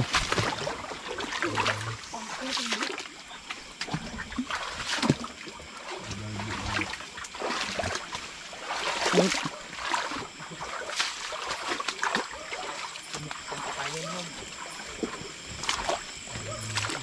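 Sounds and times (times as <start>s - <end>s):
short low hum: 0.0s - 17.0s
water splashing: 0.0s - 17.0s.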